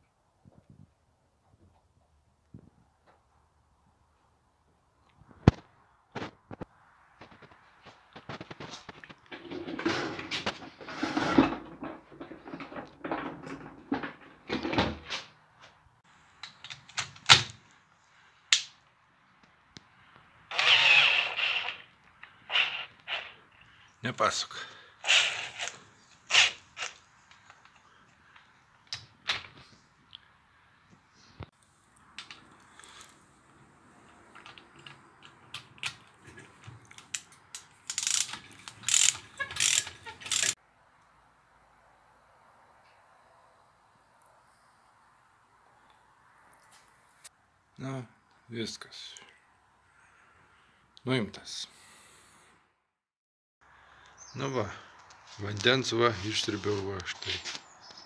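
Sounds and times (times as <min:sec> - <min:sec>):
ratchet wrench clicking: 0:37.8 - 0:40.6.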